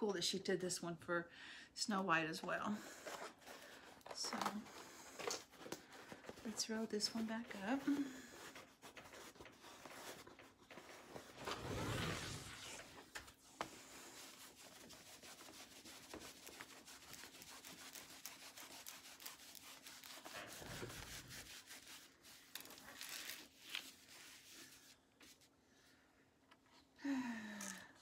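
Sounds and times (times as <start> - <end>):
plastic film crackling: 22.4 - 24.0.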